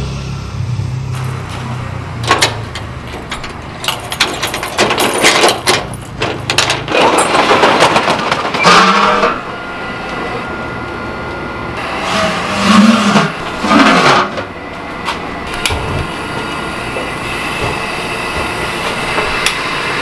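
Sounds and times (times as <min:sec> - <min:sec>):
roller shutter slats rattling: 0:01.1 - 0:09.6.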